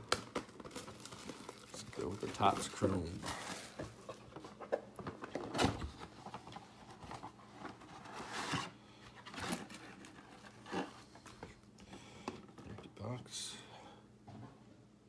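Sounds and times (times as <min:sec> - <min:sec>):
plastic wrap and cardboard tearing: 0:00.0 - 0:04.2, 0:05.3 - 0:11.0
rustling and scraping: 0:01.2 - 0:11.6.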